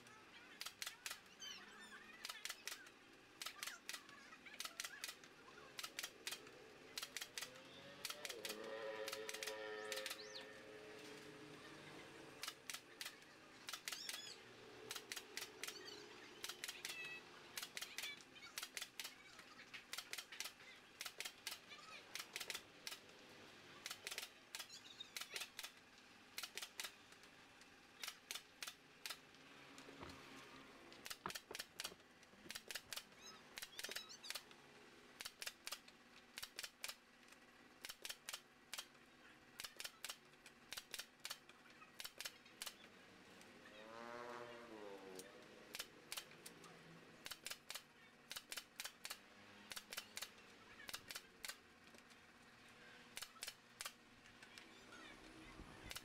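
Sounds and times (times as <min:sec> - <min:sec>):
nail gun firing into bamboo: 0:00.6 - 0:01.3, 0:02.2 - 0:02.8, 0:05.8 - 0:10.2, 0:12.4 - 0:14.3, 0:14.9 - 0:15.8, 0:16.4 - 0:19.2, 0:19.8 - 0:23.1, 0:23.8 - 0:25.8, 0:26.4 - 0:27.0, 0:28.0 - 0:29.3, 0:31.0 - 0:34.4, 0:35.2 - 0:37.0, 0:37.8 - 0:38.9, 0:39.6 - 0:42.8, 0:45.7 - 0:46.5, 0:47.2 - 0:51.6, 0:53.2 - 0:54.0.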